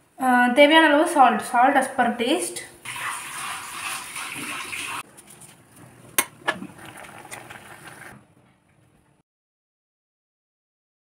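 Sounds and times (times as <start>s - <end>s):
curry bubbling in a pan: 6.5s - 8.2s.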